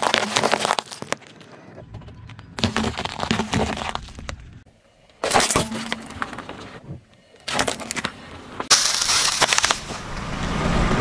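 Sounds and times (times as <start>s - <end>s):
floral foam crunching and cracking: 0.0s - 1.4s, 2.6s - 4.3s, 8.7s - 10.0s
plastic tub crackling and crunching: 0.0s - 1.4s, 2.6s - 4.4s, 8.7s - 10.0s
car rolling on asphalt: 9.5s - 11.0s.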